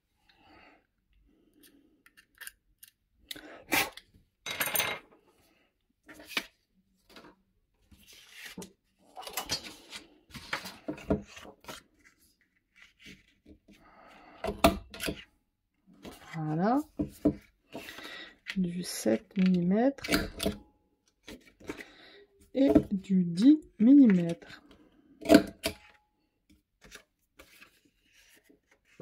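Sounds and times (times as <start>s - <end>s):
paper rustling: 7.9s - 8.7s.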